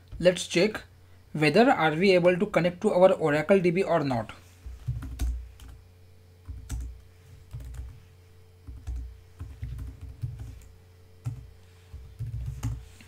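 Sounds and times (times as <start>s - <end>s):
typing on computer keyboard: 6.5s - 6.9s, 7.5s - 8.0s, 8.7s - 11.4s, 12.1s - 12.8s.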